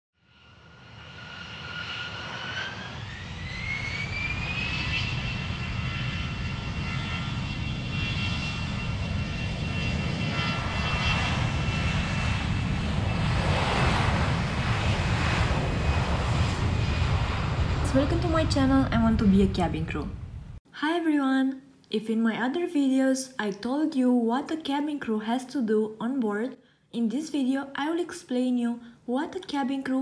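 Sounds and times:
jet engine whine rising: 0.2 - 20.6
low engine rumble: 14.6 - 20.6.

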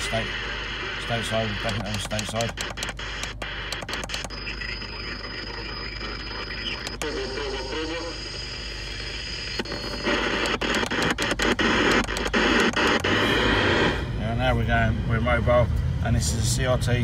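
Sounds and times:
radio static hissing and crackling: 0.0 - 14.6
faint voice over radio: 4.2 - 9.2.

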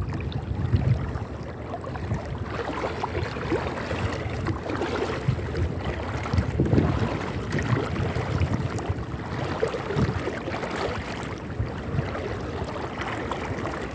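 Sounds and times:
water sloshing around wading legs: 0.0 - 13.9.

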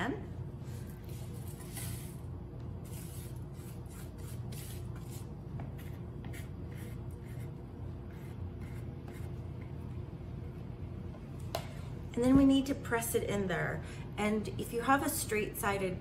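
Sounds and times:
low room hum: 0.0 - 16.0
spatula scraping a bowl: 2.8 - 9.3.

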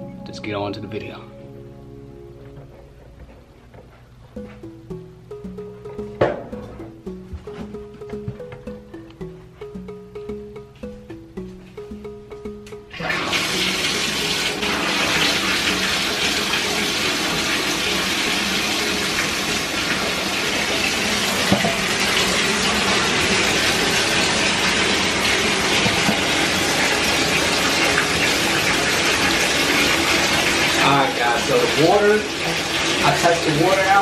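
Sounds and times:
bathtub tap turned on: 12.5 - 29.5
water gushing into tub: 13.0 - 34.0.

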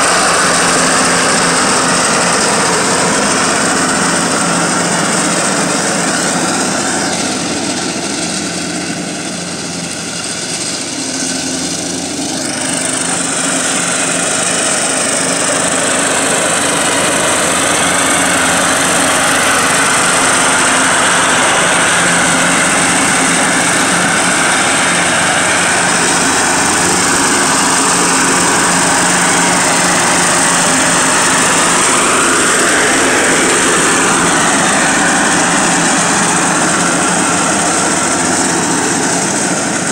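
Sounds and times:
riding mower cutting grass: 0.0 - 39.9.

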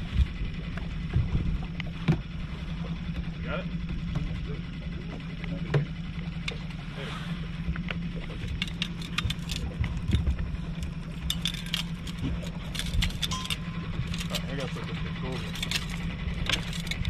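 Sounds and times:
outboard motor humming: 0.0 - 17.0
fishing gear clicks and rattles: 7.6 - 17.0.

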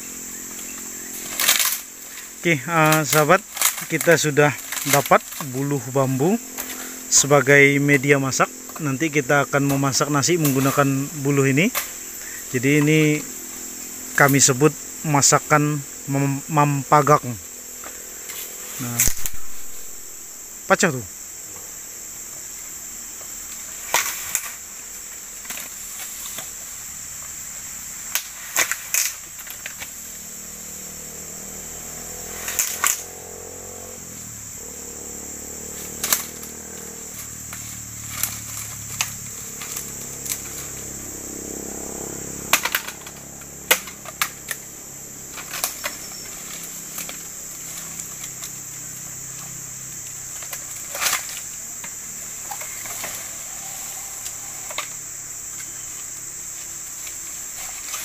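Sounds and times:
high insect buzz: 0.0 - 58.0
bamboo being chopped: 1.0 - 2.2, 2.8 - 5.7, 17.8 - 20.1, 28.1 - 30.0, 42.4 - 44.6.

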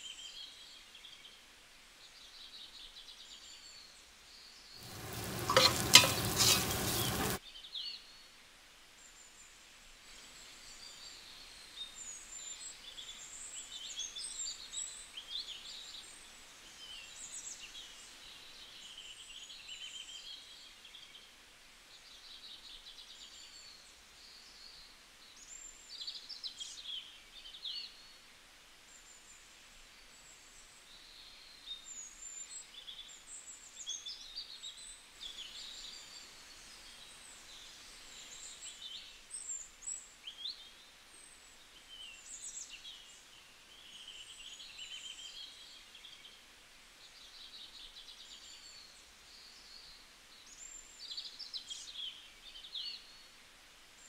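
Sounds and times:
chicken sizzling in hot oil: 4.8 - 7.4.

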